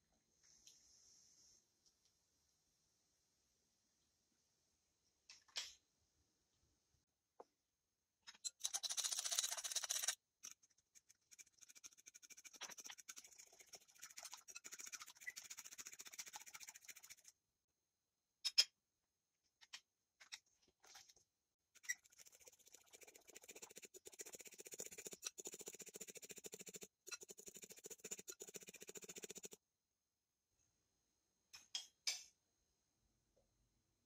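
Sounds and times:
whisk scraping glass bowl: 0:08.4 - 0:17.3, 0:21.8 - 0:29.6.

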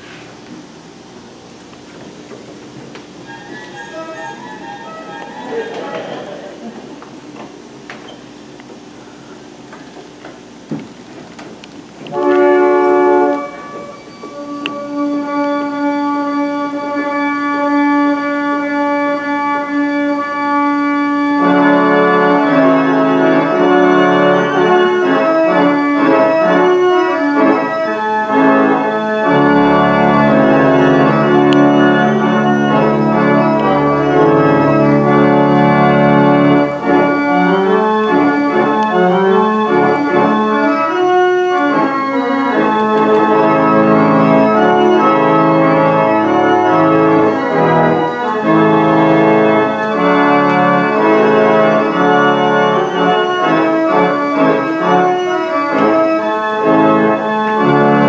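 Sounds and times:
pipe organ chords: 0:00.0 - 0:58.0
deep organ bass note: 0:03.2 - 0:07.0, 0:28.4 - 0:53.4.

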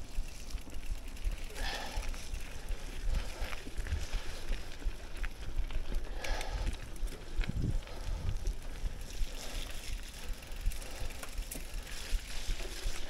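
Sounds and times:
bike clicks and rattles: 0:00.0 - 0:13.0
bike tyres over dirt and leaves: 0:00.0 - 0:13.0
wind rumble on microphone: 0:06.5 - 0:09.3.

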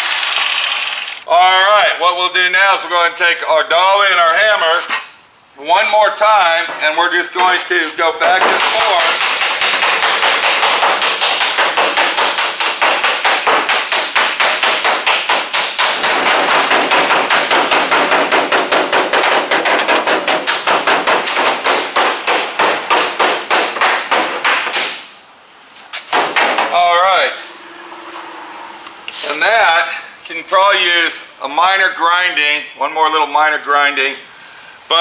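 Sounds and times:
hammer striking metal panel: 0:08.2 - 0:25.1.

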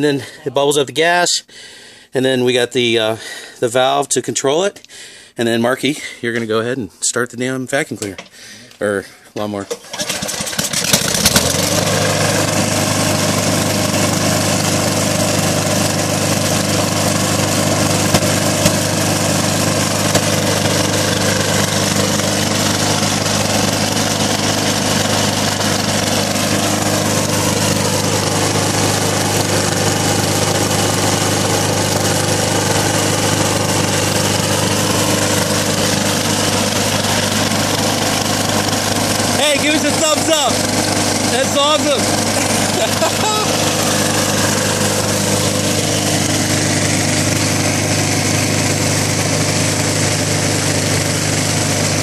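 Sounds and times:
lawnmower engine starting and running: 0:09.4 - 0:52.0.

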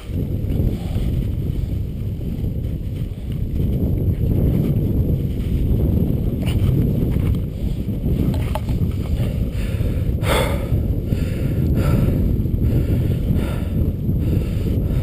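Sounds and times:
wind rumbling on microphone: 0:00.0 - 0:15.0
short breathy rushes: 0:09.1 - 0:15.0.

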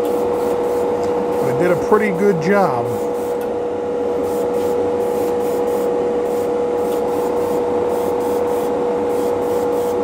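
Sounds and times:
airbrush spraying hiss: 0:02.9 - 0:03.4, 0:04.2 - 0:10.0.

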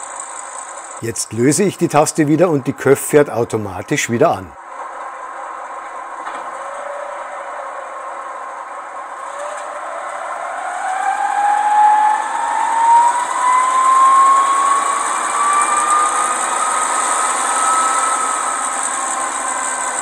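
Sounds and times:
model locomotive engine sound rising: 0:00.0 - 0:20.0.

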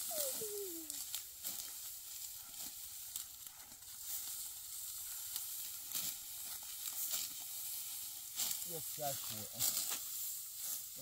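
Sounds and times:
dry wheat stalks rustling: 0:00.0 - 0:11.0.

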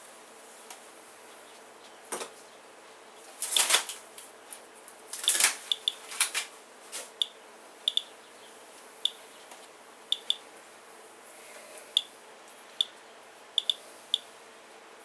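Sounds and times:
geiger counter clicking: 0:05.7 - 0:06.0, 0:07.2 - 0:08.1, 0:10.1 - 0:10.4, 0:13.6 - 0:13.8.

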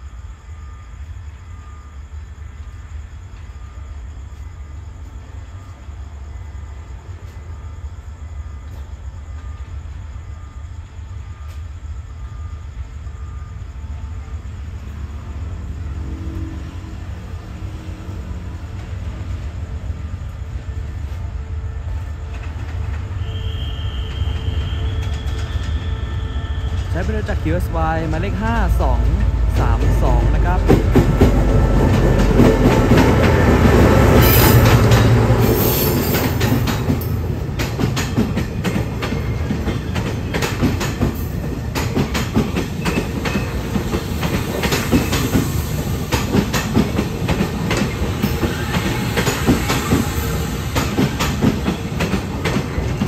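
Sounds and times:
diesel locomotive rumbling: 0:00.0 - 0:53.0
high squeal: 0:23.0 - 0:29.0.

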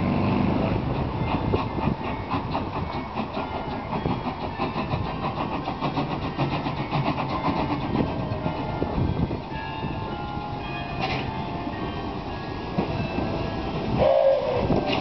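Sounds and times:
steam locomotive chuffing: 0:00.0 - 0:15.0
steam hissing: 0:00.9 - 0:09.3.

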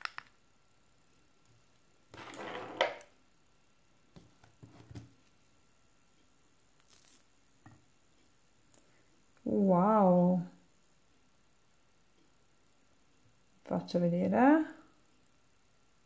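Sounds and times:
plastic jar lid scraping: 0:02.2 - 0:03.0.

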